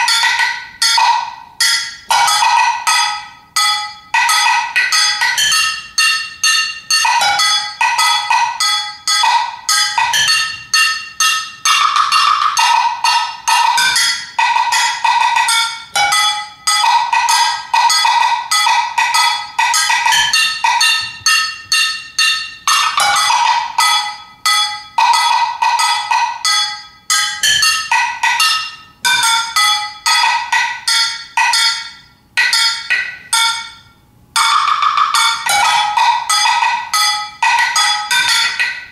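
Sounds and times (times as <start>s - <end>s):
metal percussion struck with sticks: 0.0s - 38.9s.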